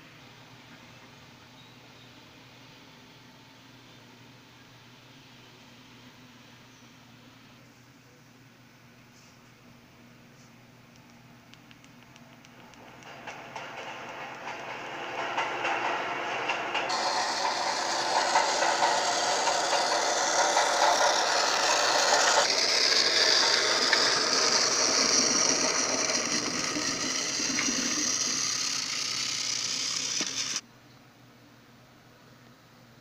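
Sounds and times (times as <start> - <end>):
toy train motor whirring: 12.4 - 30.6.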